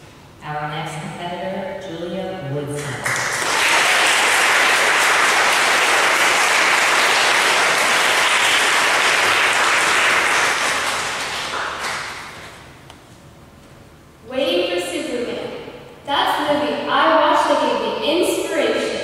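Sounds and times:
audience clapping: 2.8 - 12.7.

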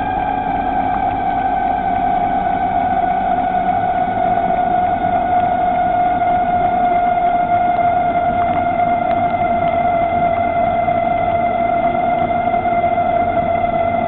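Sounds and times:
electric bicycle motor whining: 0.0 - 14.0.

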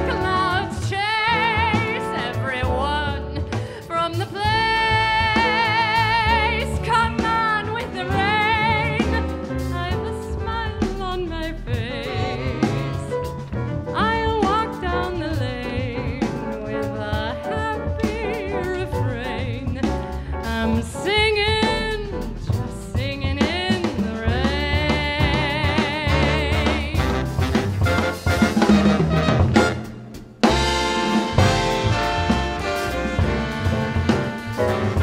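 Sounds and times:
live jazz band: 0.0 - 35.0
woman singing with vibrato: 4.0 - 13.1, 14.0 - 19.8, 20.5 - 27.2.

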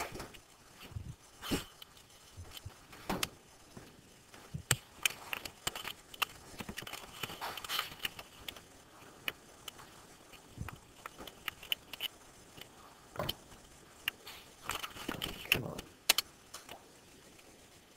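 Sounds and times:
low room noise: 0.0 - 17.9.

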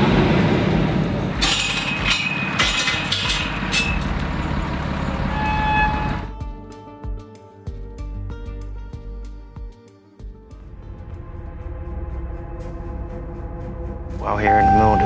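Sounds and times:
road noise: 0.0 - 6.4, 10.6 - 15.0
truck engine rumble: 0.0 - 6.4
sharp rattling clatters: 1.4 - 5.2
music: 5.9 - 15.0.

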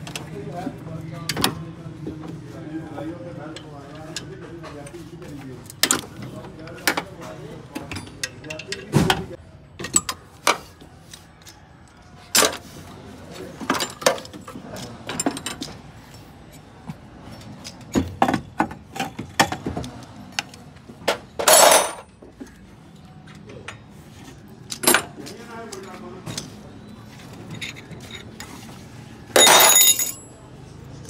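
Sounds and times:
metal tools clinking: 13.6 - 19.6, 21.3 - 22.2, 24.7 - 26.6, 27.2 - 28.7, 29.3 - 30.4.

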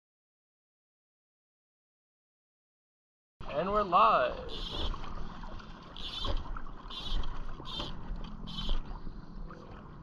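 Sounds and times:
river water washing: 3.4 - 10.0
fishing line zipping: 5.9 - 8.9.

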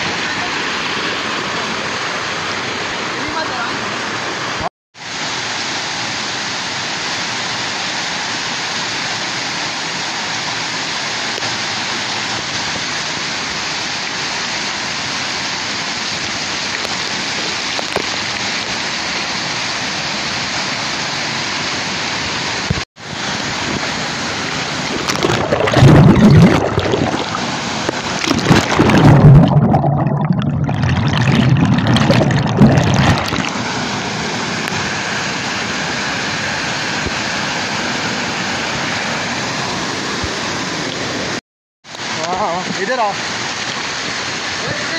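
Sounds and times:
waterfall rushing onto rocks: 0.0 - 29.8, 30.8 - 44.9
cascade low rumbling: 24.9 - 27.4, 28.2 - 33.4.

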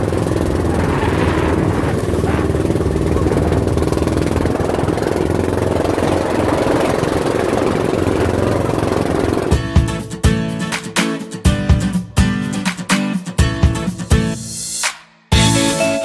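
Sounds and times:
engine running steadily: 0.0 - 10.0.

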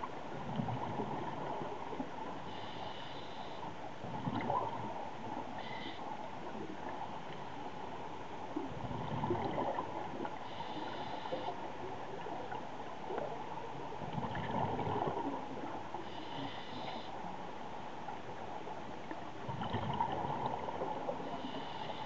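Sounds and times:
hissing inhale through regulator: 2.5 - 3.7, 5.6 - 6.0, 10.4 - 11.6, 16.0 - 17.2, 21.2 - 22.0
bubbles gurgling underwater: 8.8 - 10.2, 14.0 - 15.3, 19.5 - 21.1.

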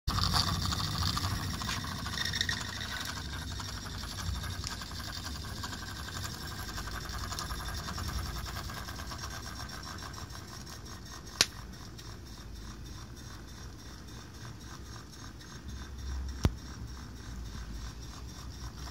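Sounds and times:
mechanical clatter: 0.1 - 18.9
sharp click: 11.4 - 11.6.

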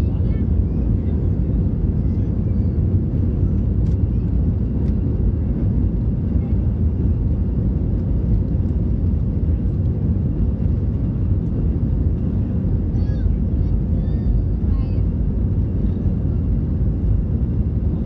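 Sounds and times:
jet engines rumbling: 0.0 - 18.0.

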